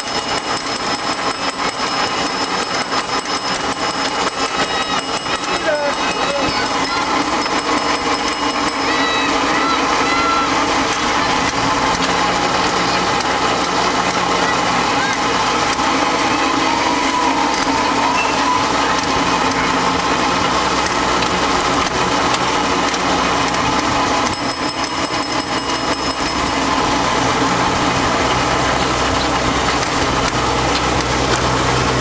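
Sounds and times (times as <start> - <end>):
high-pitched ringing pulse: 0.0 - 9.8, 24.2 - 27.4
ride train rattling: 0.0 - 32.0.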